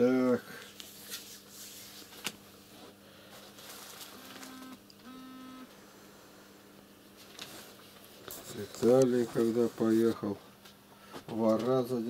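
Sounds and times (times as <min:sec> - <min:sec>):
faint electrical hum: 0:00.0 - 0:12.0
book pages rustling: 0:03.4 - 0:04.6, 0:07.2 - 0:10.2.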